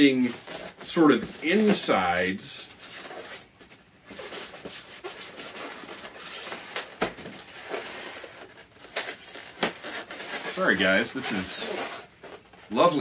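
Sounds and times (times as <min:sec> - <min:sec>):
foam rubbing and creaking: 0:00.0 - 0:13.0.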